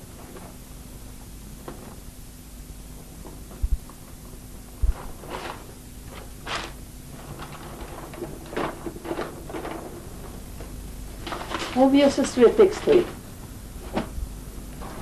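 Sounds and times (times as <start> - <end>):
bag and paper rustling: 4.8 - 14.2.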